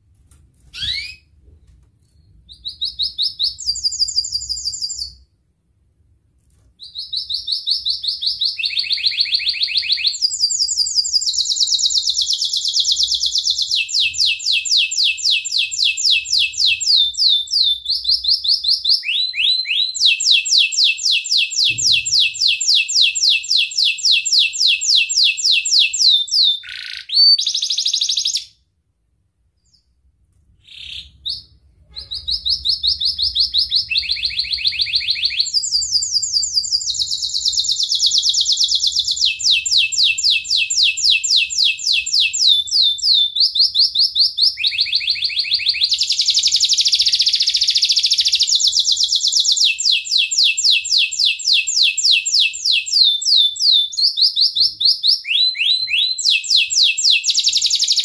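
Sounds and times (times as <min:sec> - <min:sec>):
canary singing trills: 0:00.7 - 0:01.3, 0:02.2 - 0:05.2, 0:30.6 - 0:58.0
short bird chirps: 0:29.6 - 0:30.0.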